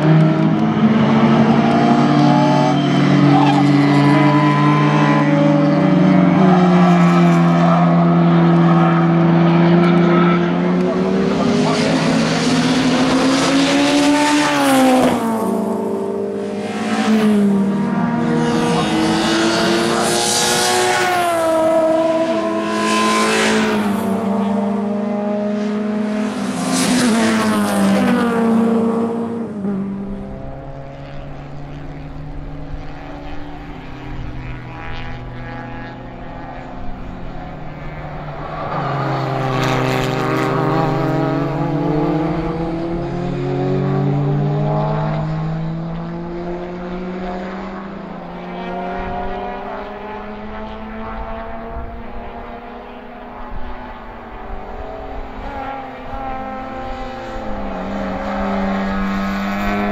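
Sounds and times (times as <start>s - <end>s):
racing car engines revving: 0.0s - 59.9s.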